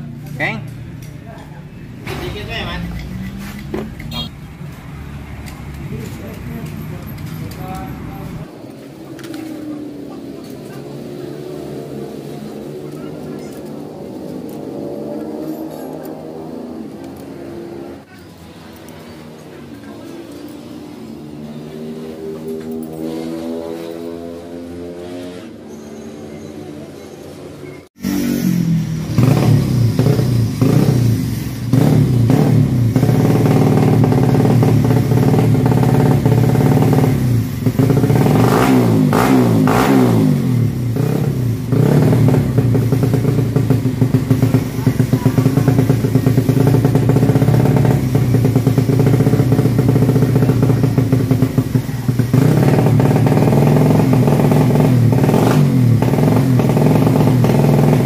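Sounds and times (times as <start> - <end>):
motorcycle engine revving: 1.9 - 58.0.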